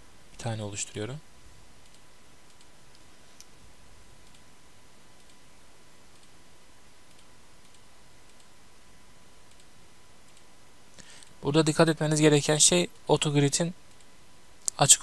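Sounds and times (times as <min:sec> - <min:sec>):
low hiss: 0:00.0 - 0:15.0
computer mouse clicking: 0:01.8 - 0:03.5, 0:04.2 - 0:04.4, 0:05.2 - 0:05.4, 0:06.1 - 0:06.3, 0:07.1 - 0:08.5, 0:09.4 - 0:09.7, 0:10.3 - 0:10.5.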